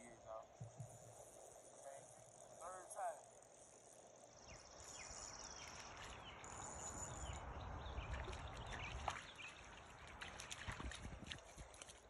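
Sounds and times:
wind rumbling on microphone: 4.3 - 12.0.

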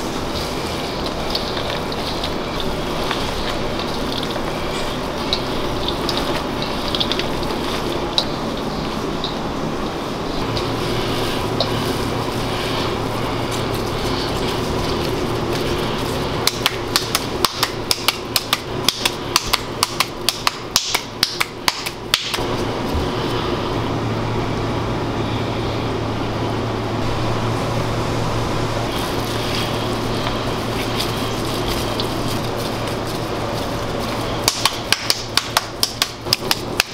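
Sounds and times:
kitchen fan humming: 0.0 - 36.9
meat slapped between hands: 16.5 - 22.4, 34.4 - 36.9.

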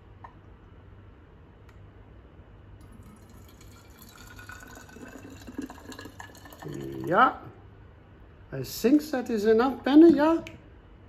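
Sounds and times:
water trickling into bottle: 2.9 - 7.1.

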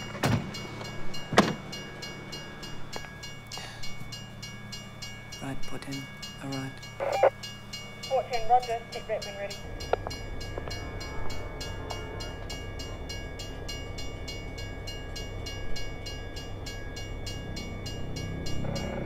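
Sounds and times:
diesel train idling rumble: 0.0 - 19.0.

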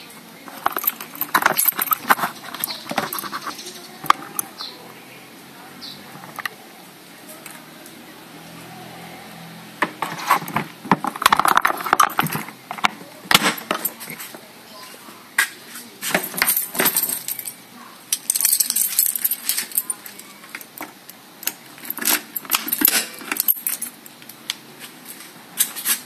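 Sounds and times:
light metallic clicks and rattles: 0.5 - 4.6, 9.9 - 14.3, 16.1 - 24.6.

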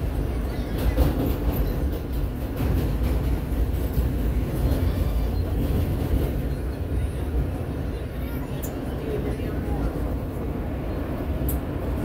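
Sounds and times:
subway train rumbling: 0.0 - 12.0.

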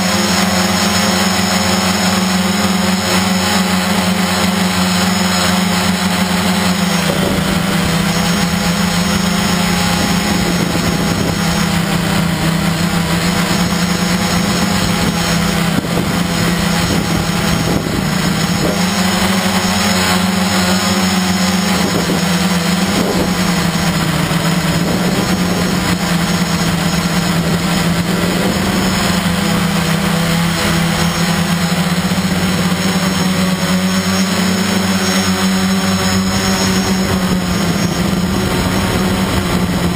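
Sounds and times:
drone propellers buzzing: 0.0 - 39.9.

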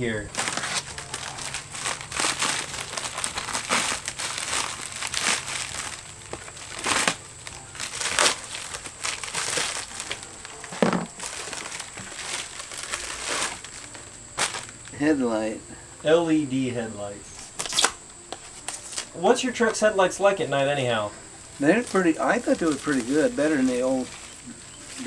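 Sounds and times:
plastic bag crinkling: 0.3 - 15.0, 21.5 - 25.0.

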